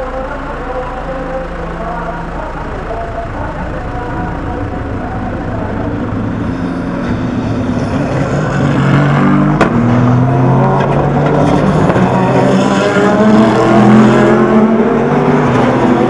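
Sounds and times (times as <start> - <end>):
race car engines downshifting: 0.0 - 16.0.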